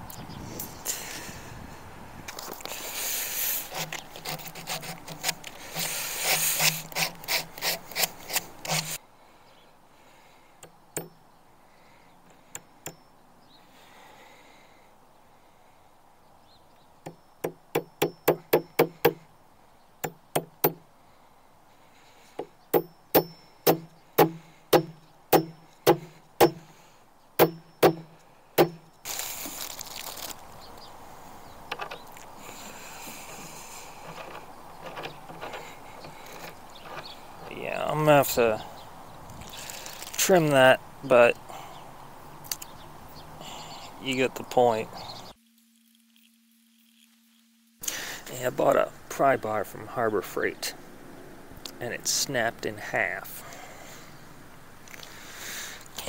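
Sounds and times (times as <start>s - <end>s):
hand tool strokes on wood: 2.6s - 9.0s, 32.4s - 37.6s
single clicks: 42.5s - 42.7s.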